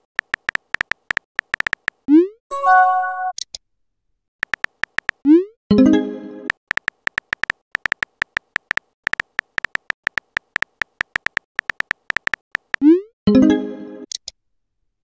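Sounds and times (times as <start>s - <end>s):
message-sent chime: 2.5s - 3.3s.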